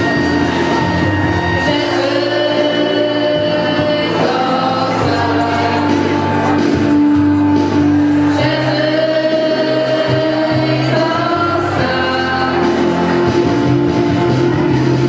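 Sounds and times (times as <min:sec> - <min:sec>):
girls singing together: 0:01.5 - 0:06.6, 0:08.1 - 0:13.9.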